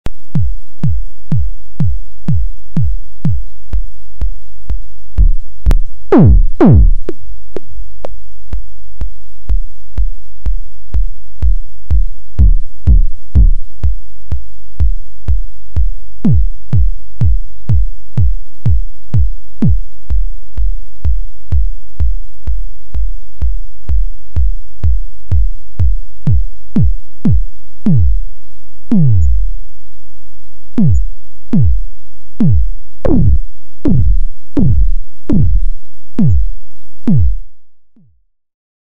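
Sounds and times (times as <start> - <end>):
electronic drum hits: 5.2 - 7.2, 12.4 - 13.6, 25.8 - 28.2, 28.9 - 29.4, 32.4 - 36.5, 37.1 - 37.4
steady low synth drone: 32.5 - 36.6.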